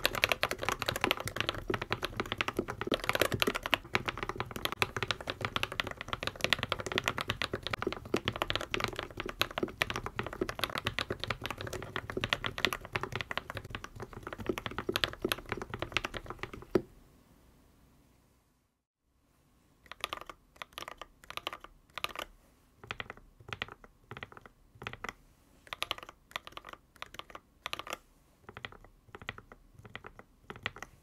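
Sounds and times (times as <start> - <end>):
fast mechanical keyboard typing: 0.0 - 16.8, 19.9 - 31.0.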